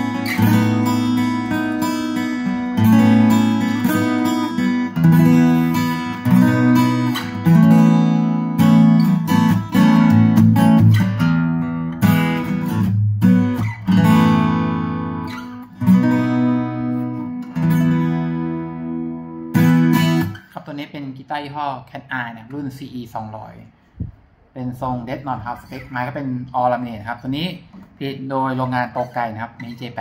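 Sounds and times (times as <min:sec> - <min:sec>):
fingerstyle acoustic guitar: 0:00.0 - 0:20.6.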